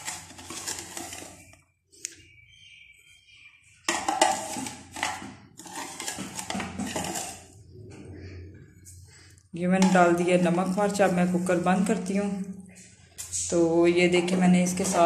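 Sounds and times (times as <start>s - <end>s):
metal spoon scraping in pot: 0.0s - 1.6s, 3.8s - 7.8s, 9.6s - 12.1s, 14.0s - 15.0s.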